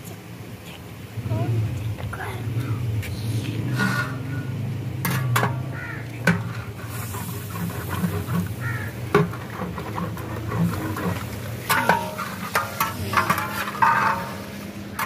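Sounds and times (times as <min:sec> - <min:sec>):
gravy slopping: 0:03.7 - 0:15.0.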